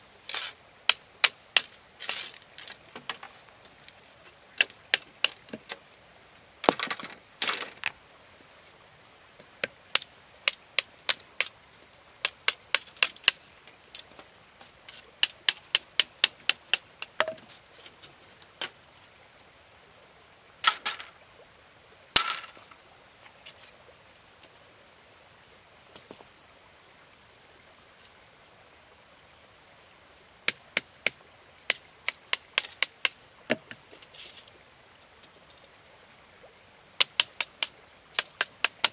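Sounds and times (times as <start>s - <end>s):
knife striking bamboo: 0.3s - 2.4s, 4.6s - 5.7s, 12.2s - 13.4s, 15.2s - 17.4s, 37.0s - 38.9s
bamboo splitting cracks: 0.3s - 4.0s, 4.6s - 5.8s, 6.6s - 7.9s, 9.6s - 11.6s, 12.2s - 13.4s, 14.9s - 17.5s, 31.7s - 33.8s, 37.0s - 38.9s.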